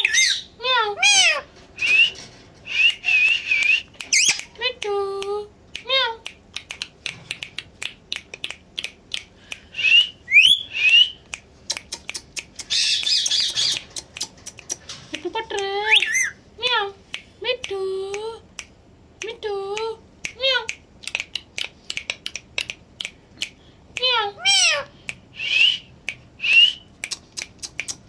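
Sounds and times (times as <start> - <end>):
parakeet chirps and whistles: 0.0 - 4.4, 9.8 - 11.2, 12.7 - 13.8, 15.9 - 16.4
parakeet sharp clicks: 10.9 - 14.9, 27.0 - 28.0.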